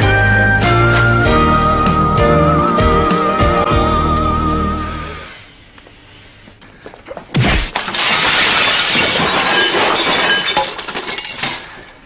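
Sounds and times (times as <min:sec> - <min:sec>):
glass shattering: 0:07.7 - 0:12.0
glass shards tinkling: 0:08.4 - 0:12.0.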